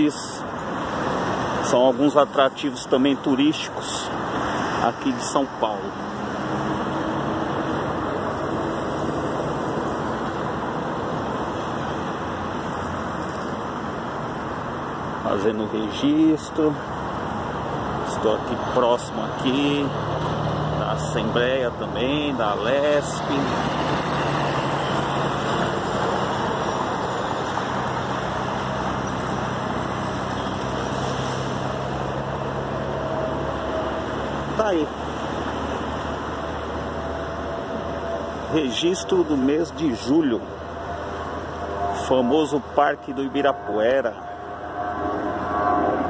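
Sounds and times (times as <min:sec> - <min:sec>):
road traffic noise: 0:00.0 - 0:46.0
rushing outdoor background noise: 0:00.0 - 0:46.0
low engine hum: 0:19.2 - 0:46.0.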